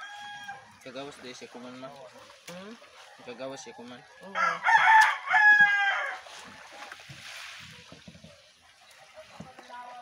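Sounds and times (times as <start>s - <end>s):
rooster crowing: 0.0s - 0.7s, 3.2s - 6.3s.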